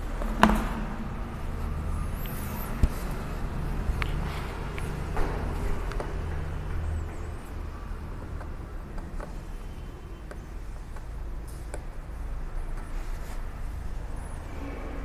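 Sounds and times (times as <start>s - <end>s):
faint clicks and taps: 2.2s - 13.4s.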